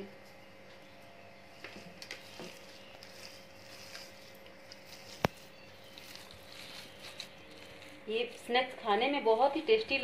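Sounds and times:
hands squishing food mixture: 2.0 - 8.8.

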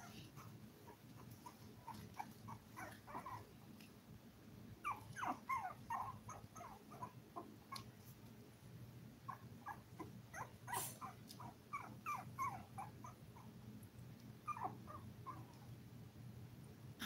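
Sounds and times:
puppy whimpering: 0.0 - 3.5, 4.8 - 7.9, 9.3 - 13.5, 14.4 - 15.6
low steady hum: 0.0 - 17.0.

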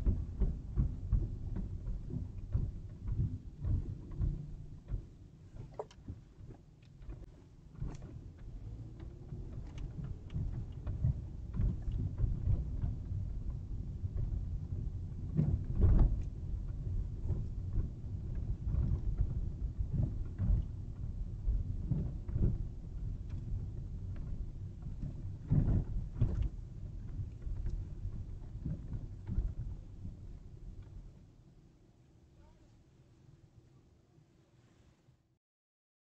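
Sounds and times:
car knocks and rattles: 0.0 - 30.8
tyre and suspension rumble: 0.0 - 30.9.

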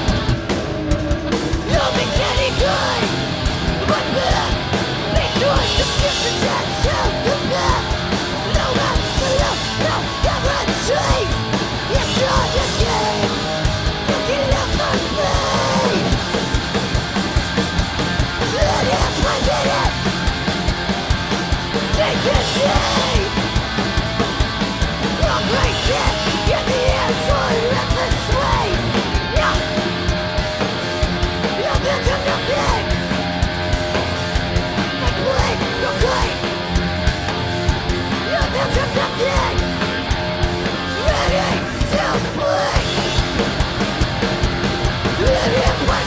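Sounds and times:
punk band playing live: 0.0 - 46.0
shouted lead vocals: 0.0 - 46.0.

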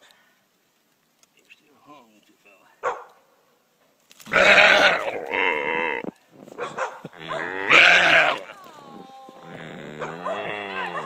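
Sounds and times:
deer bleating in distress: 4.3 - 6.1, 7.2 - 11.0.

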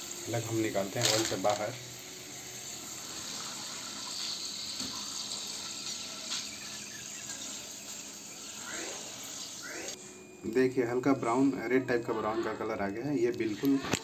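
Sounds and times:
oil sizzling and bubbling: 0.0 - 10.0.

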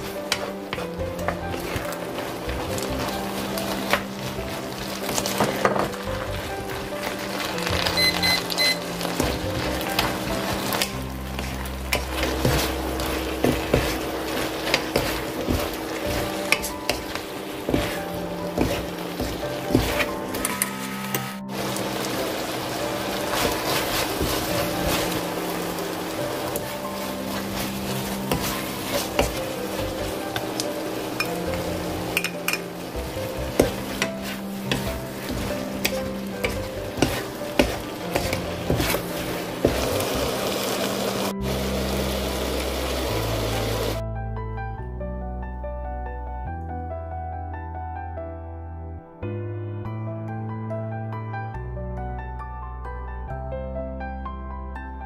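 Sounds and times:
food sizzling in a pan: 0.0 - 44.0
wooden spatula scraping a pan: 0.0 - 44.0.

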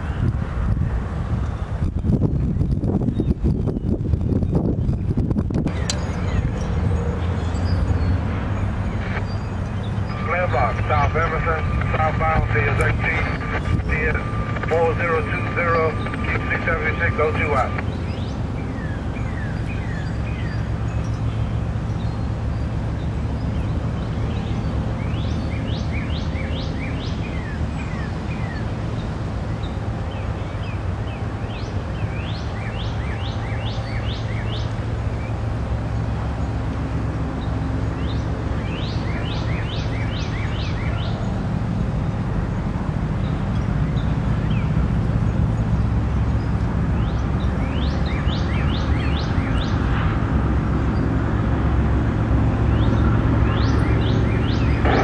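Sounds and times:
low rumble: 0.0 - 32.6, 50.0 - 55.0
songbird singing: 0.0 - 55.0.

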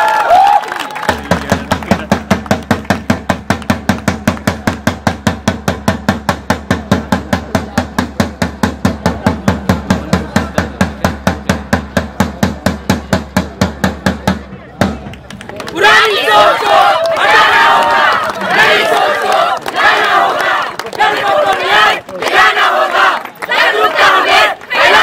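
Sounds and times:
drum beaten in fast rhythm: 1.0 - 15.2.

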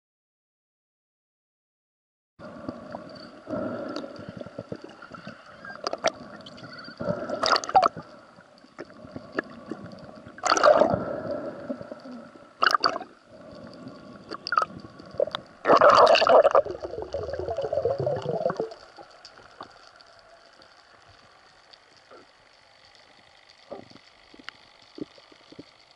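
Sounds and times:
underwater bubbling and gurgling: 2.4 - 25.9.

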